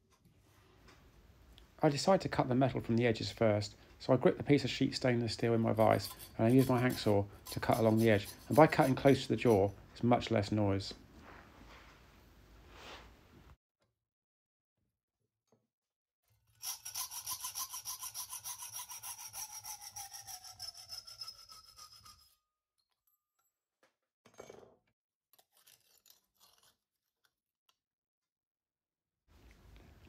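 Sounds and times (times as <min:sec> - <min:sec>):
hacksaw cutting metal sheet: 0:05.7 - 0:09.7, 0:16.6 - 0:22.4.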